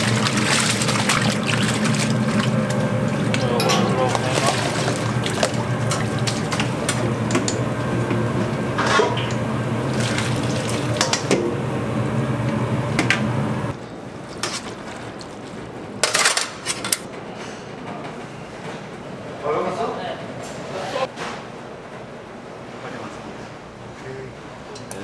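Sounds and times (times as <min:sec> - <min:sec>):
tap water splashing in sink: 0:00.0 - 0:07.5, 0:09.9 - 0:11.4
steady low hum: 0:00.0 - 0:25.0
colander and metal bowls clacking: 0:03.2 - 0:07.7.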